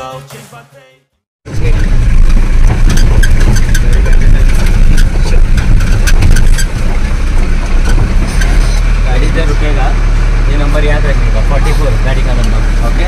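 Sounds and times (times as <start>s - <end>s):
car engine rumble: 1.4s - 13.0s
car body rattling and knocking: 1.6s - 9.0s.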